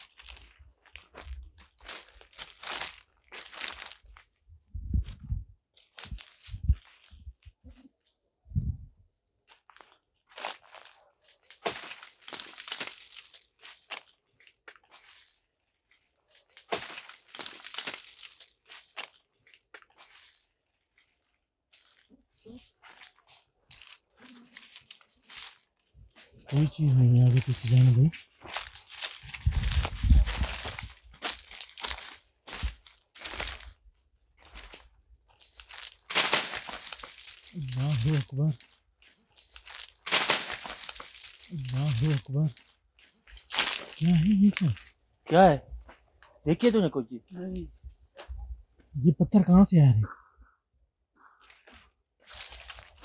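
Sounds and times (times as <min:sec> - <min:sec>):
footsteps crunching dry leaves: 0:00.0 - 0:04.4, 0:05.8 - 0:07.4, 0:09.5 - 0:45.0, 0:51.4 - 0:53.0.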